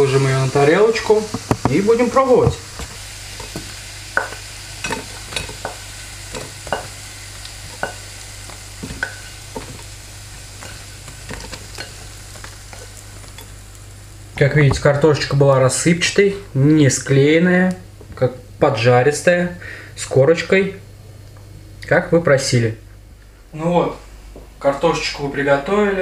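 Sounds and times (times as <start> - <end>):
hot oil sizzling: 0.0 - 22.6
utensil scraping frying pan: 1.3 - 13.7.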